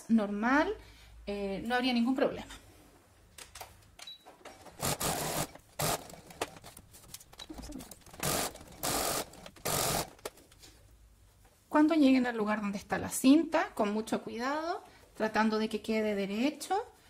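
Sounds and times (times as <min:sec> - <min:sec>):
sewing machine stitching: 0:04.8 - 0:06.5, 0:08.0 - 0:10.2.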